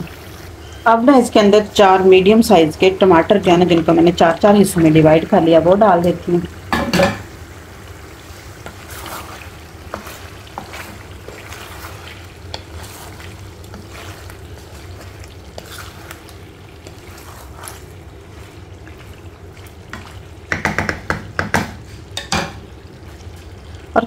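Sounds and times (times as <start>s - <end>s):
food sizzling in a pan: 0.0s - 24.0s
knocks against the pan: 6.7s - 7.3s, 20.5s - 22.6s
wooden spatula scraping pan: 8.6s - 20.3s.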